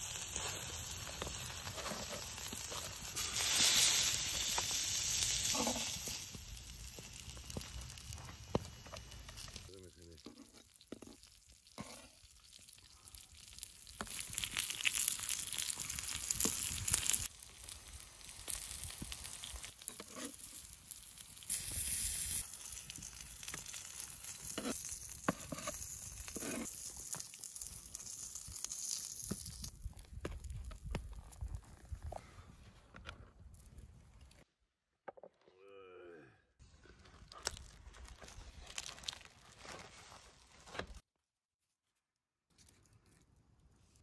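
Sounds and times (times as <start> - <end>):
food sizzling on hot stone: 0.0 - 29.7
knife scraping and tapping stone: 24.5 - 26.7.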